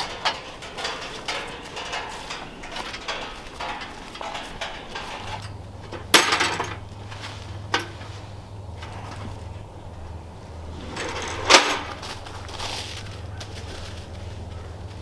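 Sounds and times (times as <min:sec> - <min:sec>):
wire cage trap rattling: 0:00.0 - 0:06.8, 0:10.7 - 0:13.2
loud metallic clank: 0:10.7 - 0:12.2
footsteps in dry leaves: 0:11.9 - 0:15.0.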